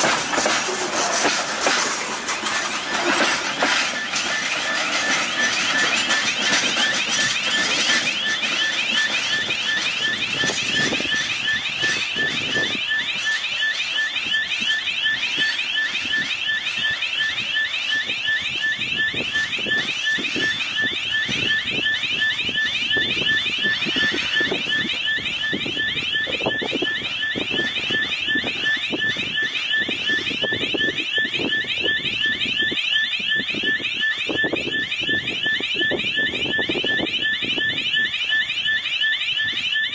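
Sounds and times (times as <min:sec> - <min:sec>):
level crossing alarm chirps: 0:00.0 - 0:39.9
steady high tone: 0:00.0 - 0:39.9.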